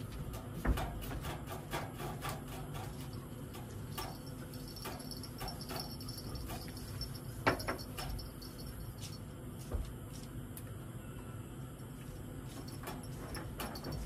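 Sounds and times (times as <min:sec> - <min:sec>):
low background hum: 0:00.0 - 0:14.0
insects chirping: 0:03.2 - 0:10.0.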